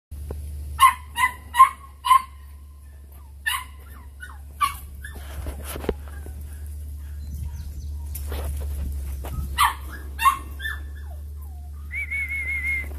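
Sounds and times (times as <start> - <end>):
puppy yapping: 0.8 - 8.4, 9.4 - 12.9
scuffling: 3.1 - 12.9.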